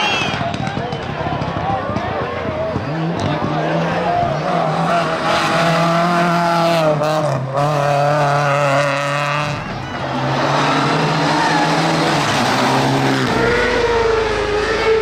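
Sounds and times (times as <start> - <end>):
race car engine revving hard: 2.8 - 15.0.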